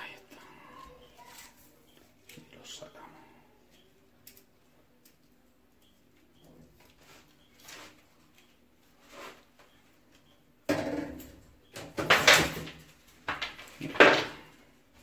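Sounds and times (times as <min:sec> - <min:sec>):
objects scraping and knocking: 0:08.9 - 0:09.8, 0:10.7 - 0:14.7.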